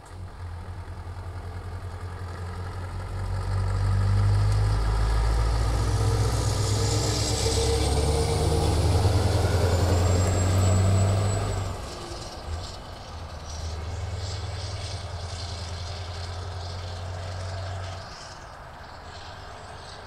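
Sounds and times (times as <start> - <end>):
truck driving past: 0.0 - 20.0
high whine: 4.7 - 20.0.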